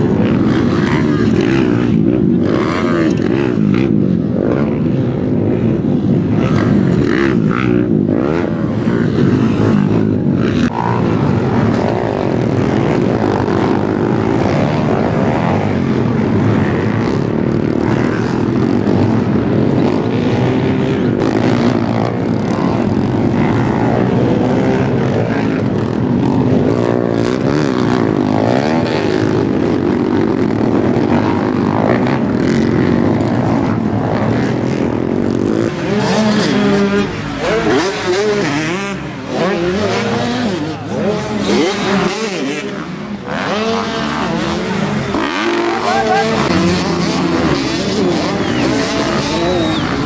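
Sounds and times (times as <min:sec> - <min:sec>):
dirt bike engines revving: 0:00.0 - 0:50.0.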